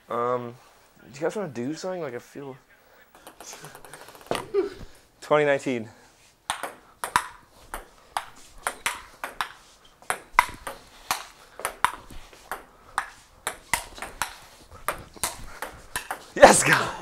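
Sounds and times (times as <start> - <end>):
table tennis ball clicking: 6.5 - 16.3.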